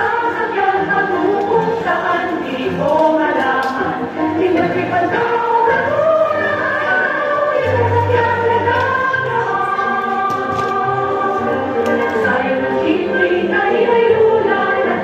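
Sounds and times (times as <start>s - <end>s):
choir-like singing: 0.0s - 15.0s.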